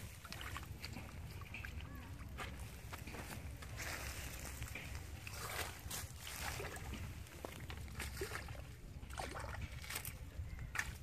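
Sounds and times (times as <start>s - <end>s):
small water splashes and sloshing: 0.0s - 11.0s.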